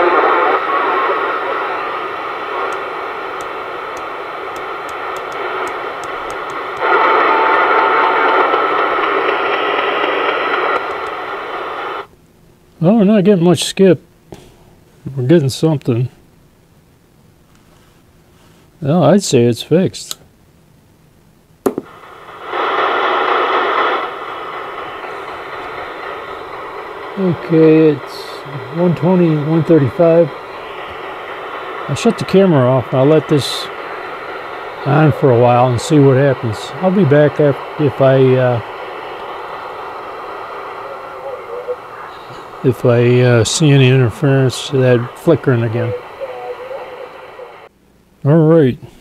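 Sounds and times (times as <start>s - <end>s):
steady radio tone: 0.0s - 12.1s, 21.8s - 47.7s
radio static hiss: 0.0s - 20.2s, 21.1s - 49.0s.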